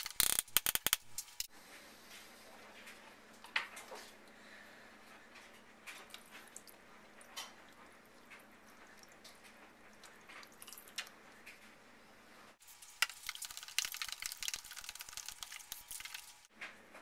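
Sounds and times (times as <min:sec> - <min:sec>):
faint liquid drips: 0:05.9 - 0:11.7, 0:12.6 - 0:16.5
spoon stirring wet seeds: 0:12.6 - 0:16.4.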